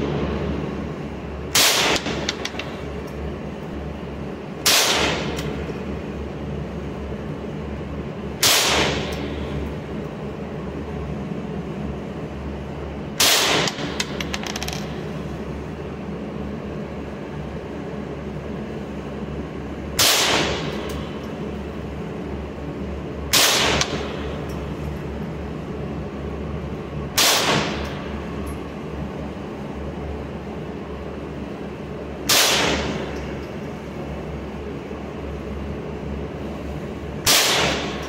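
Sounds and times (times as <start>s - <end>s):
steady low hum: 0.0s - 38.0s
loud gunshots with echo: 1.5s - 2.3s, 4.6s - 5.4s, 8.4s - 9.1s, 13.2s - 14.0s, 20.0s - 20.8s, 23.3s - 24.2s, 27.2s - 27.8s, 32.3s - 33.1s, 37.3s - 38.0s.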